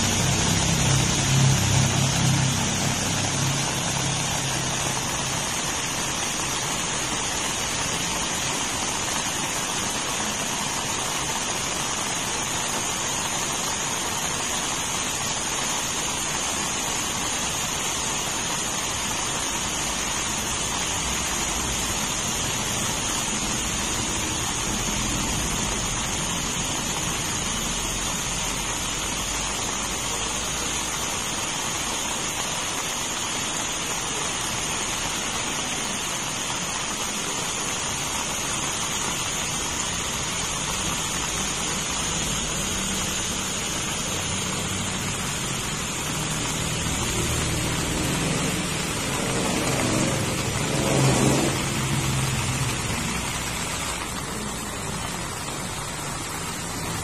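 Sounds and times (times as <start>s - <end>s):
steady high-pitched tone: 0.0s - 8.0s
heavy rain on grass: 0.0s - 57.0s.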